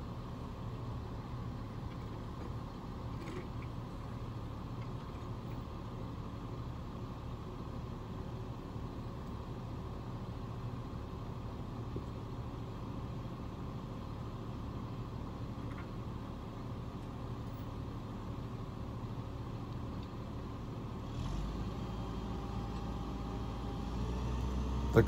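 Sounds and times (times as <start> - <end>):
diesel engine idling: 21.7 - 25.0.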